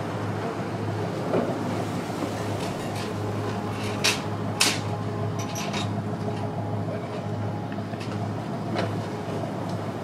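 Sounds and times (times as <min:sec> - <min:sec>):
low mechanical drone: 0:00.0 - 0:10.0
sharp clanks and knocks: 0:02.4 - 0:06.5.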